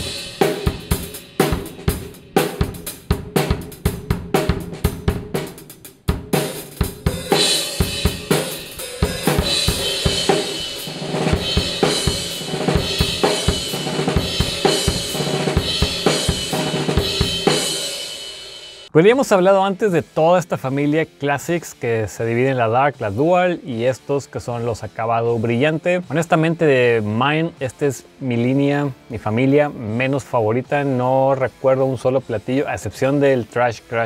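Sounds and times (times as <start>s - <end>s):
drum strokes: 0.0s - 18.9s.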